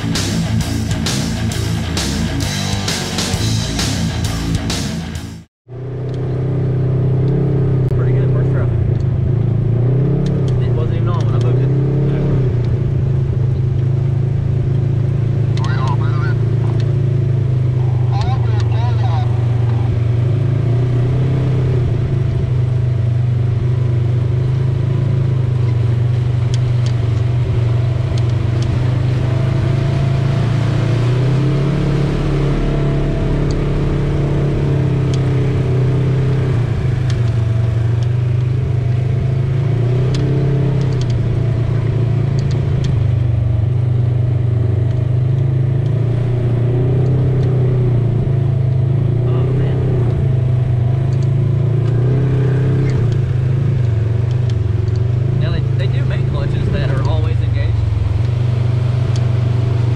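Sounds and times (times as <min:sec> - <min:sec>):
utility vehicle engine running: 0:05.7 - 0:59.9
sharp ticks: 0:40.0 - 0:41.2.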